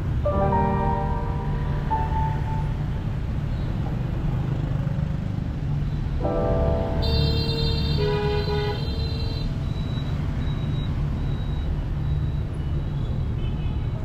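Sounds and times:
city street traffic rumble: 0.0s - 14.0s
vehicle horns honking: 6.8s - 9.6s.

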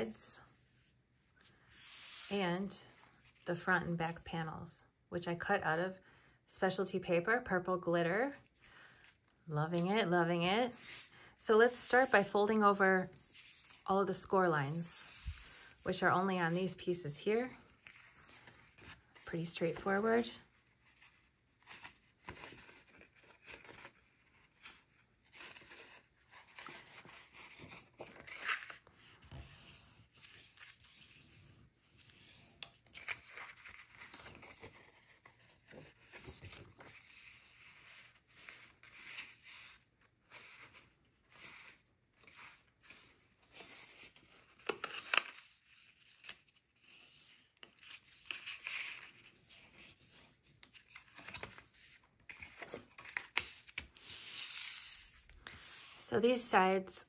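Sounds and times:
paper rustling and crinkling: 32.6s - 56.0s.

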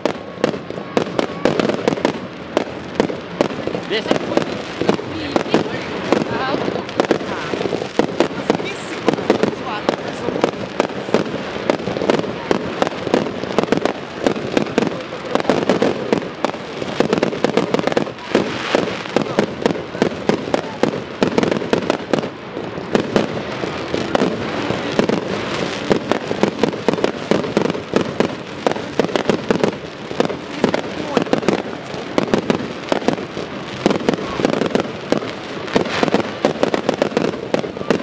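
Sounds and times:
fireworks bursting and crackling: 0.0s - 38.0s.

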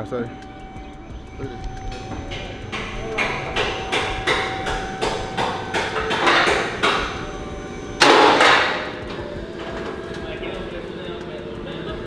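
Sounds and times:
loud burst of noise: 0.0s - 12.0s
hammer blows on metal: 0.3s - 9.4s.

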